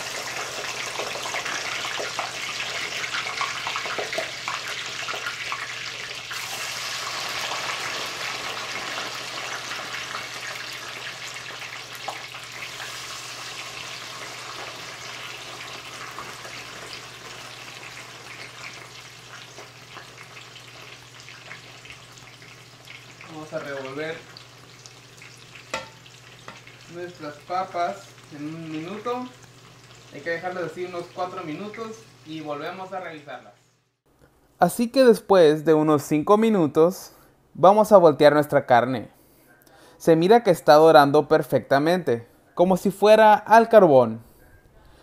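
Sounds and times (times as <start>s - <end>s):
steak frying in a skillet: 0.0s - 33.0s
fries sizzling in hot oil: 0.0s - 33.5s.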